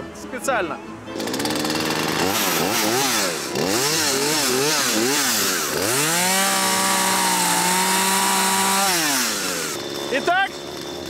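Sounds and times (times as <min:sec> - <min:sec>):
chainsaw revving: 0:01.1 - 0:11.0
chain running against asphalt: 0:01.2 - 0:11.0.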